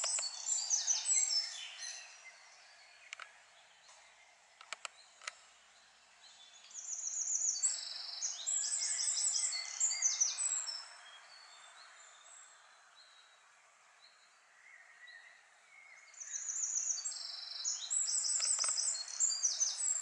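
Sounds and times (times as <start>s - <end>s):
faint birdsong: 0.0s - 20.0s
sharp click: 18.4s - 18.8s.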